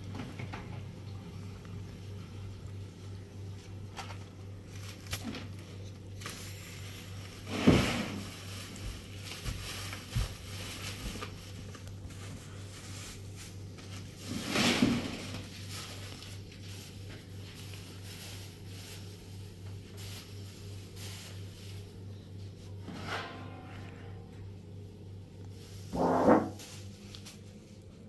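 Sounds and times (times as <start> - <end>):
items rustling in plastic basket: 2.6 - 24.4, 25.4 - 28.0.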